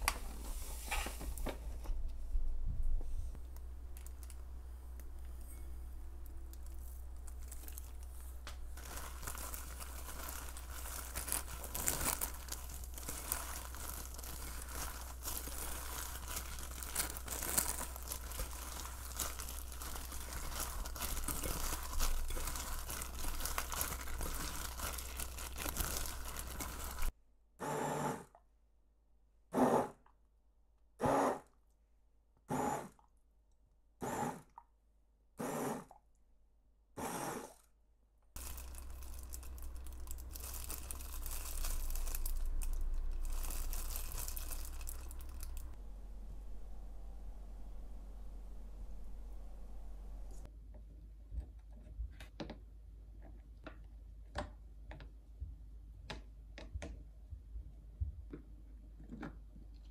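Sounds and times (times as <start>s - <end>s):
food crinkling and crunching: 6.4s - 27.1s, 38.4s - 45.8s
low hum: 38.4s - 50.5s.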